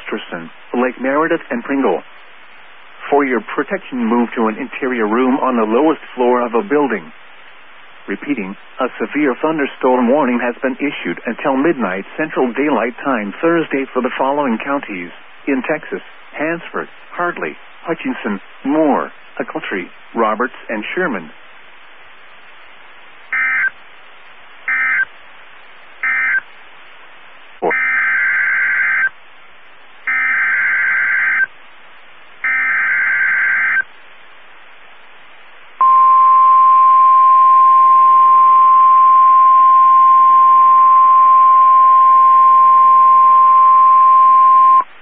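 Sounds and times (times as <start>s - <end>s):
radio hiss: 0.0s - 35.9s
short data bursts: 21.6s - 34.1s, 35.8s - 45.0s.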